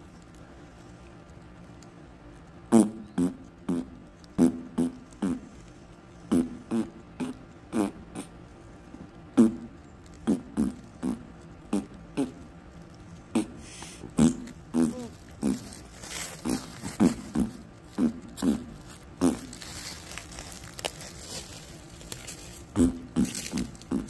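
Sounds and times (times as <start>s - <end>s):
fart noises: 2.7s - 5.5s, 6.3s - 8.3s, 9.4s - 12.4s, 13.3s - 15.8s, 16.4s - 19.8s, 22.7s - 24.0s.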